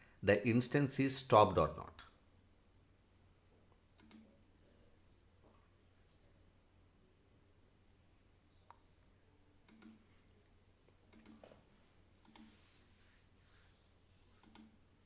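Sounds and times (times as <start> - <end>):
computer mouse clicks: 4.0 - 4.5, 9.6 - 10.0, 11.1 - 11.6, 12.2 - 12.6, 14.4 - 14.8.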